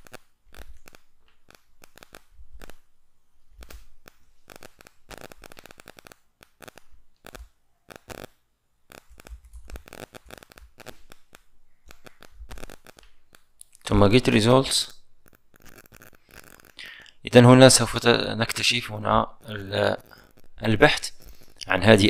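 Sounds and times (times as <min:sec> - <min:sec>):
keyboard keys clicking: 0:08.9 - 0:13.8.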